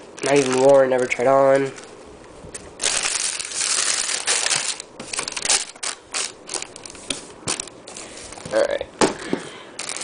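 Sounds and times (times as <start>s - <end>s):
tissue paper crinkling: 0.1s - 2.0s, 2.8s - 8.7s, 9.8s - 10.0s.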